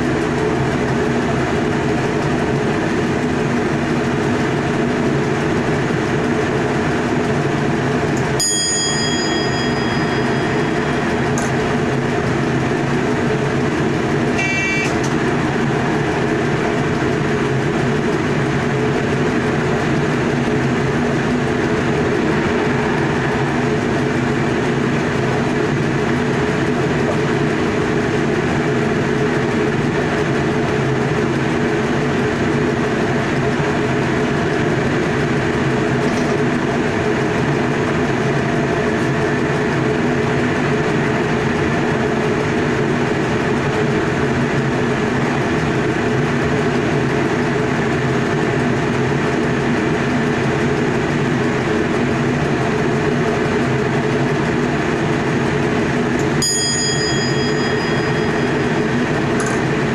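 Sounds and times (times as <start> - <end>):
train wheels rumbling on rail: 0.0 - 59.9
low held tones: 8.3 - 13.3, 56.2 - 59.9.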